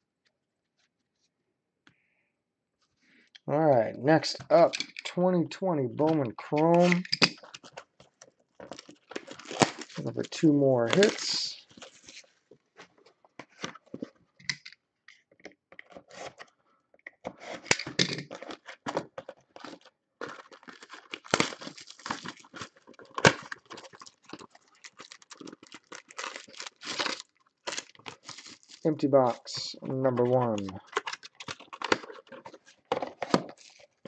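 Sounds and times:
plastic wrap crinkling: 6.9 - 10.0, 10.8 - 12.3, 18.3 - 29.4, 30.5 - 34.0
wrap ripping: 20.8 - 28.8.

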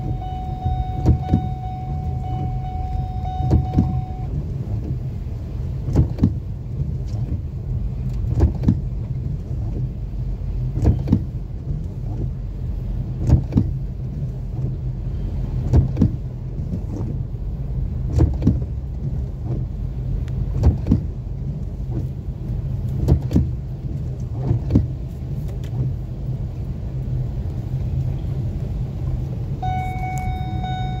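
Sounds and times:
steady pitched tone: 0.0 - 4.3, 29.6 - 31.0
windshield wipers knocking: 0.0 - 14.9, 15.6 - 17.3, 18.0 - 22.2, 22.8 - 26.4
engine and tyres on water: 0.0 - 31.0.

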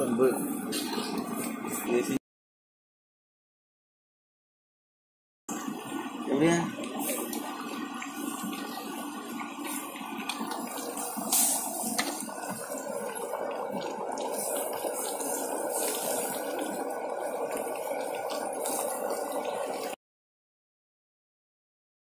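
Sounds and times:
curry bubbling in metal pot: 5.5 - 20.0.

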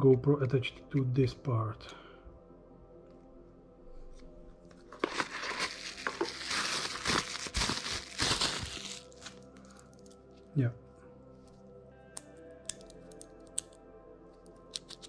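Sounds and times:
bubble wrap crinkling: 4.8 - 10.2.

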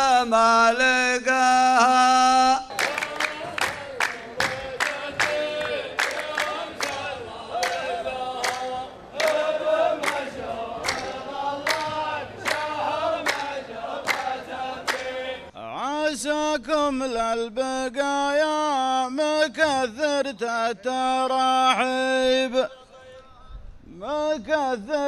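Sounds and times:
men chanting in unison: 0.0 - 23.2, 23.9 - 25.0
hand clapping: 2.7 - 15.2.

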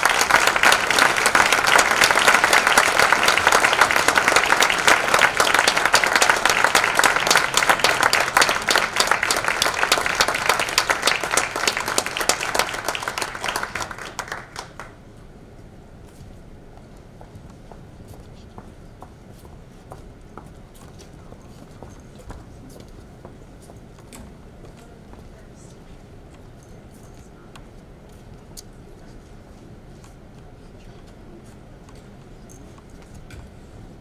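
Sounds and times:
audience applauding: 0.0 - 15.0.

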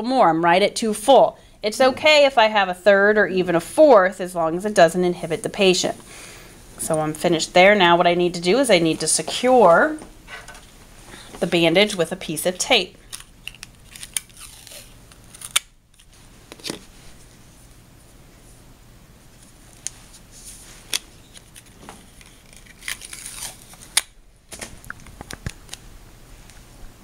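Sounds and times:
clicks and crinkles of handling: 13.1 - 14.4, 20.8 - 25.8
tape torn from dispenser: 13.1 - 16.8, 20.8 - 25.8.

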